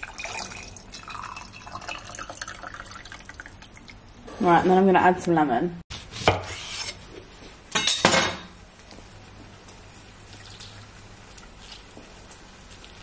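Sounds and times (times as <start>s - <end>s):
kitchenware clattering: 7.7s - 8.6s.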